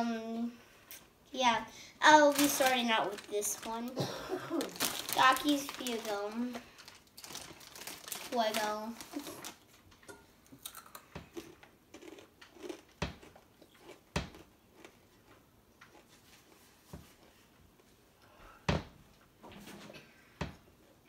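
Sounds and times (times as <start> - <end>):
child crunching a tortilla chip: 4.6 - 9.7, 10.6 - 16.6.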